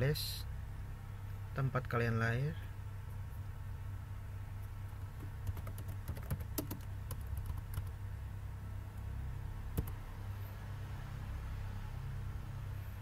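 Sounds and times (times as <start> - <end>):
computer keyboard typing: 5.0 - 8.0, 9.8 - 10.0.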